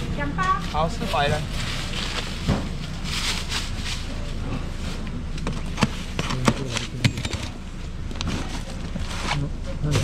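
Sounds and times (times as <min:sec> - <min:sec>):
outdoor background noise: 0:00.0 - 0:10.0
plastic rustling: 0:00.4 - 0:05.0.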